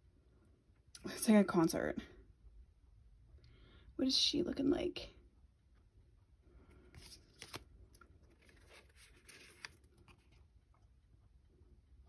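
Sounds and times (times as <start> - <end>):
cards rustling: 6.8 - 10.5
cards clicking: 7.0 - 7.6.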